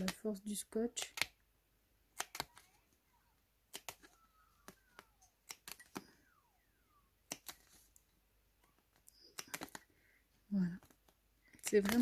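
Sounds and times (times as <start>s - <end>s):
scissors snipping tape: 0.9s - 1.4s, 2.1s - 2.8s, 3.7s - 4.2s, 4.9s - 6.0s, 7.2s - 7.8s, 8.9s - 9.8s
faint sliding whistle-like tones: 5.9s - 7.2s.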